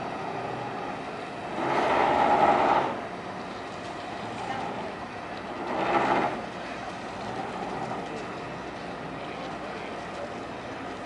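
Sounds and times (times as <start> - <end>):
boat engines idling: 0.0 - 11.0.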